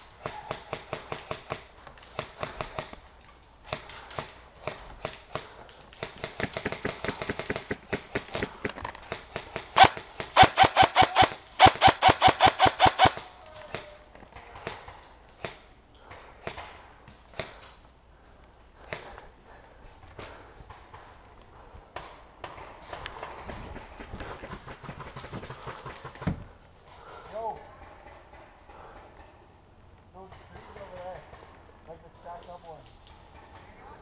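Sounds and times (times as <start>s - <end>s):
airsoft rifle rapid fire: 0.2s - 3.0s, 3.7s - 13.3s.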